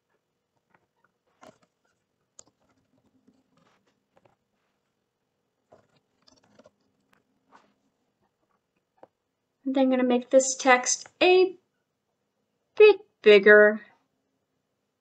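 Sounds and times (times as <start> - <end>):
faint keyboard typing: 0.0 - 4.5, 5.6 - 7.4.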